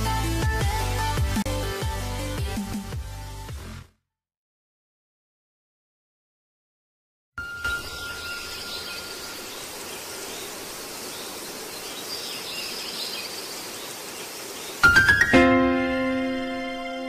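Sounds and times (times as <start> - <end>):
faint high chirps: 7.4 - 10.6
steady outdoor hiss: 7.4 - 17.0.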